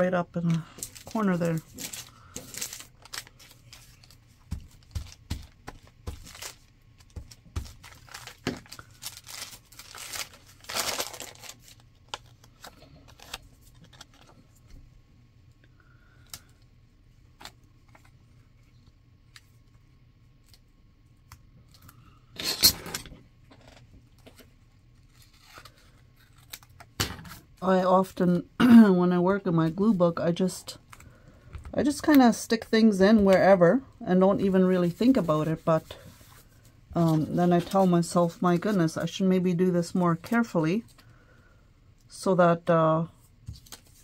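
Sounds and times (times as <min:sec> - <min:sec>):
paper crackle: 0:00.4 - 0:14.5, 0:25.0 - 0:26.9
paper rustling and crinkling: 0:00.4 - 0:14.6, 0:24.2 - 0:26.9, 0:34.4 - 0:39.1, 0:43.4 - 0:44.0.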